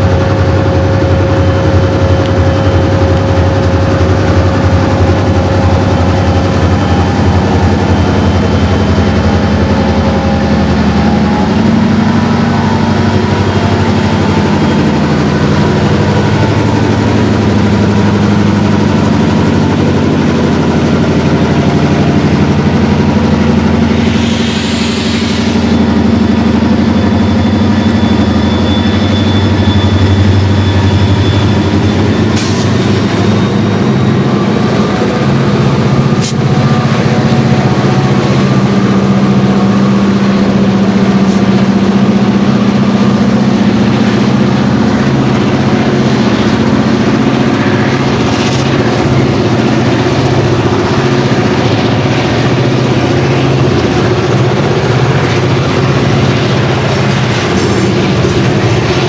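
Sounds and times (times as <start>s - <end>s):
diesel locomotive engine drone: 0.0s - 59.0s
air hissing: 23.8s - 25.8s.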